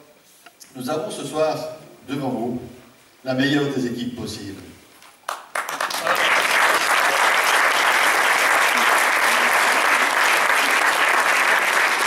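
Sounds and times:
audience applauding: 0:05.2 - 0:12.0.

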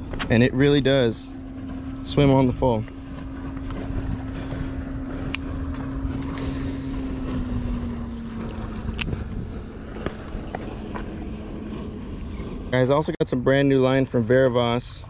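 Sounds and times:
motorboat engine passing: 0:00.0 - 0:15.0
wind rumble on microphone: 0:00.0 - 0:15.0.

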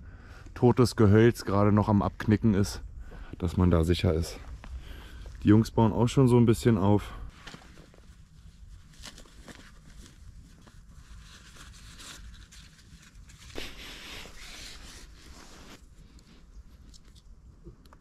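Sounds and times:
nylon sack rustling: 0:07.3 - 0:15.9.

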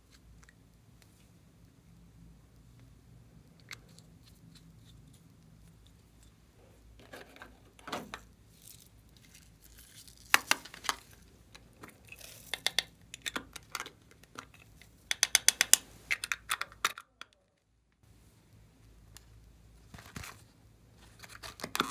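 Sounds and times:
soft plastic rustles: 0:02.5 - 0:15.0, 0:17.5 - 0:21.9.

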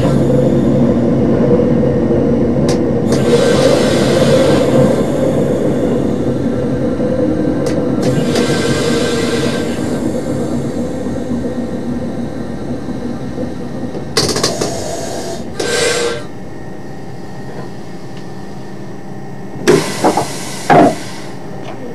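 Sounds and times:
railcar engine rumble: 0:00.0 - 0:21.9
air hissing: 0:03.0 - 0:07.0, 0:07.6 - 0:12.8, 0:14.1 - 0:16.4, 0:19.6 - 0:21.5.

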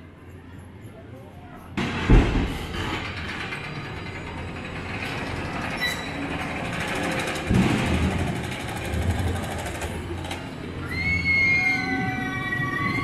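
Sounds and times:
excavator clanking and grinding: 0:01.8 - 0:10.6.

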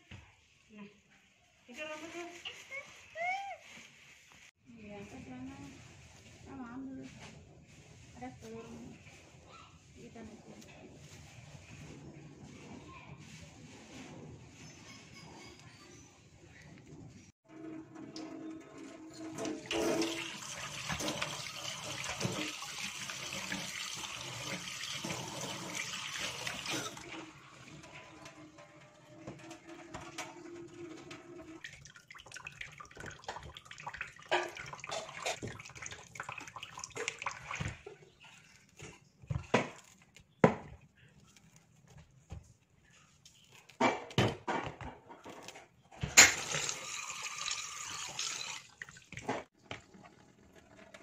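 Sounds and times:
water running into a metal sink: 0:17.5 - 0:38.0, 0:46.2 - 0:51.0
knocks and splashes: 0:31.1 - 0:40.9, 0:43.6 - 0:49.9.

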